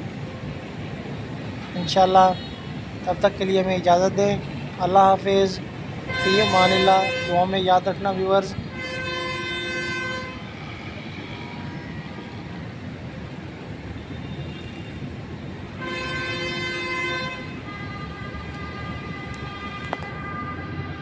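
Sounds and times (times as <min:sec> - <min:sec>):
sustained horn tones: 0:06.1 - 0:07.4, 0:15.8 - 0:21.0.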